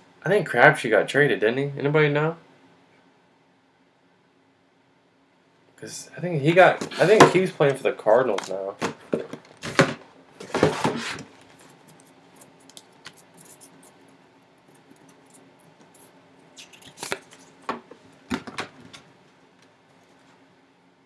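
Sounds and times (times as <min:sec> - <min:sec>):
cardboard box rustling and scraping: 0:09.6 - 0:11.6.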